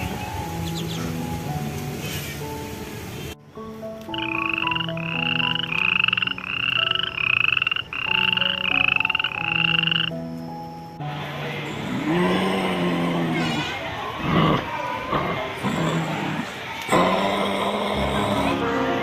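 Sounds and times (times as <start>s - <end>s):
outdoor background noise: 0.0s - 19.0s
frog croaking: 4.1s - 10.6s.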